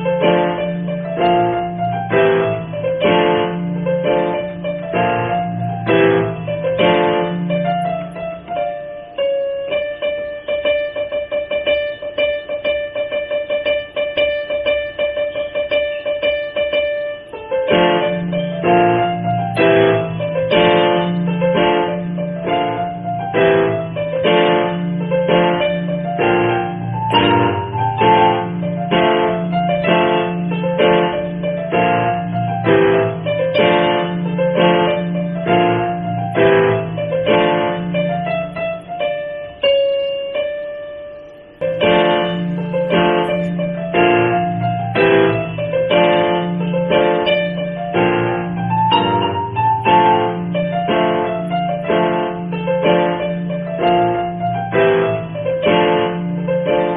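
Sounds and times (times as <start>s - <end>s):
keyboard music with bouncy rhythm: 0.0s - 56.9s
held high keyboard notes: 15.4s - 56.9s.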